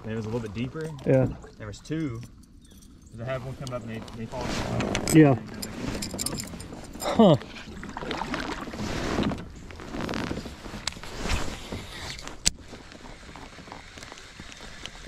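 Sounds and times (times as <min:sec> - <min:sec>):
handling rustles and knocks: 0:01.9 - 0:07.1.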